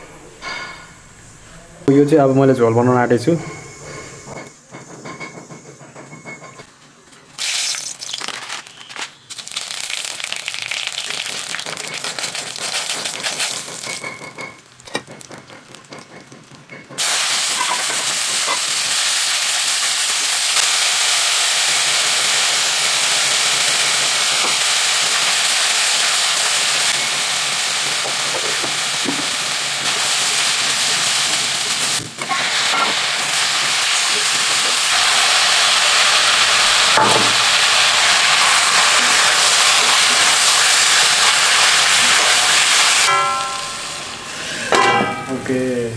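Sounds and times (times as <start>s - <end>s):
onions sizzling in hot oil: 7.4s - 16.0s, 17.0s - 44.6s.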